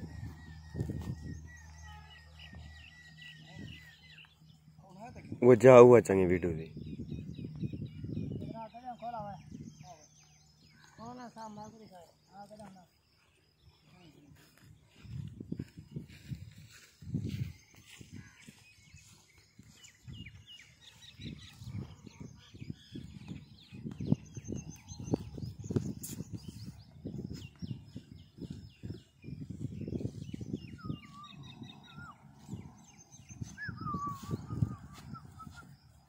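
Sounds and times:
wavering whistled bird notes: 0:00.0 - 0:05.4, 0:17.4 - 0:36.0
small birds chirping: 0:00.0 - 0:36.0.

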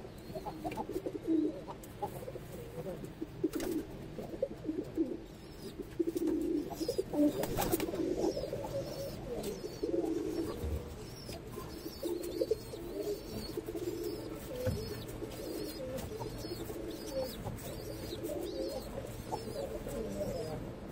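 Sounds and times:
pigeons cooing: 0:00.0 - 0:20.9.

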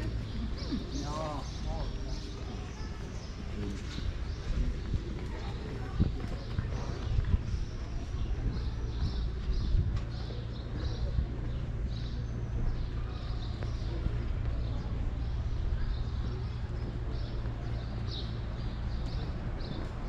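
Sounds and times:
footsteps on cobblestones: 0:00.0 - 0:20.0.

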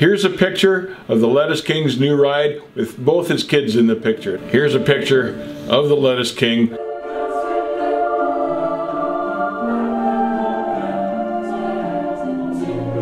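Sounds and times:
choir singing held chords: 0:03.7 - 0:13.0.

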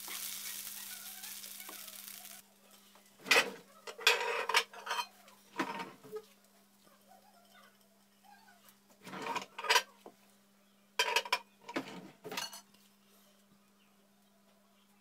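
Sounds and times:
ceramic dishes clattering: 0:03.2 - 0:06.0, 0:11.0 - 0:12.7.

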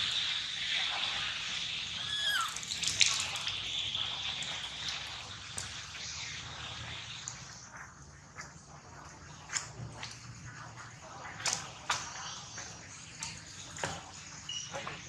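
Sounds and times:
short squeaky call: 0:02.0 - 0:02.7.

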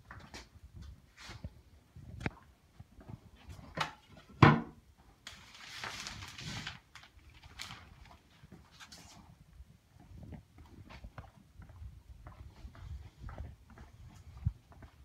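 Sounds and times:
shower curtain scraping: 0:05.4 - 0:06.8.

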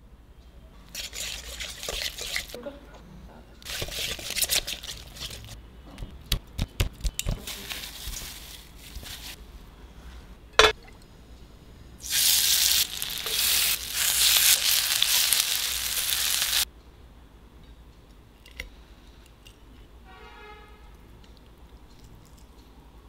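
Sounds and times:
food sizzling in hot oil: 0:12.0 - 0:16.7.

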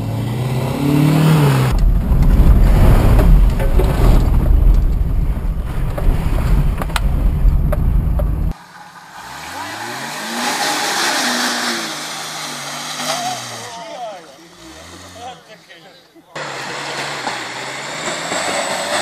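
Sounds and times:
engine revving: 0:00.0 - 0:04.8, 0:08.0 - 0:15.4, 0:16.4 - 0:19.0
engine and drivetrain rumble: 0:00.0 - 0:15.3, 0:16.4 - 0:19.0.

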